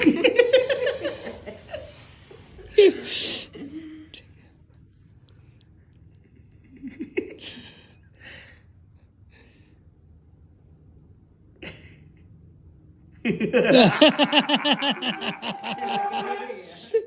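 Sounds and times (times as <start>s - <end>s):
loud laughter: 13.3s - 17.0s.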